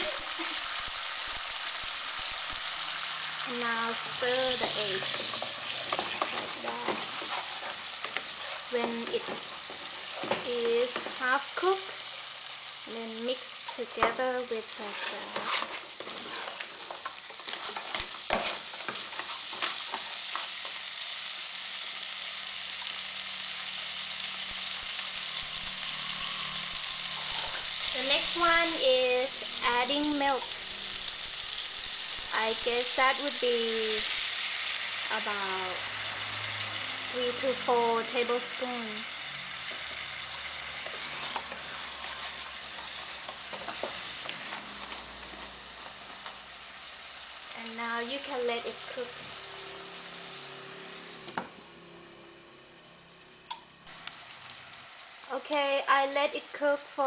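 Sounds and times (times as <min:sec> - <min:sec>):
food sizzling in a pot: 0:00.0 - 0:57.0
ladle scraping and stirring: 0:04.5 - 0:10.4, 0:14.7 - 0:20.5, 0:40.8 - 0:46.0.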